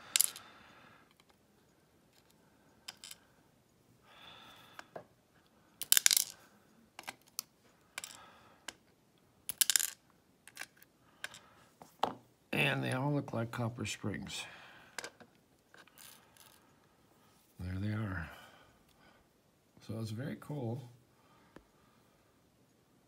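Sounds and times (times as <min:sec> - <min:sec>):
lock pins clicking: 0:05.8 - 0:06.4, 0:07.0 - 0:08.9, 0:09.5 - 0:11.4.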